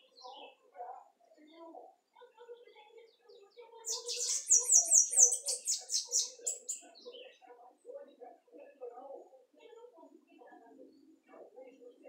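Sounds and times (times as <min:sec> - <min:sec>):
bird singing high fast notes: 0:03.9 - 0:06.8.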